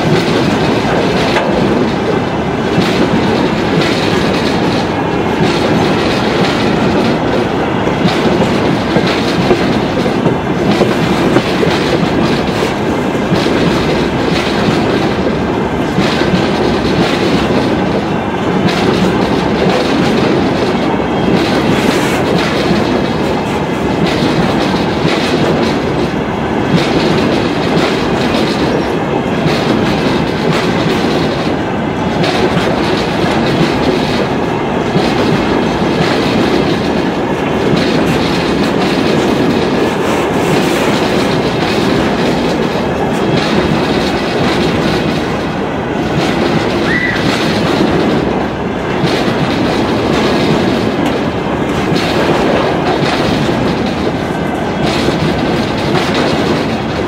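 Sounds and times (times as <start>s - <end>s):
freight train rolling past: 0.0s - 57.0s
wheels clicking over rail joints: 0.0s - 57.0s.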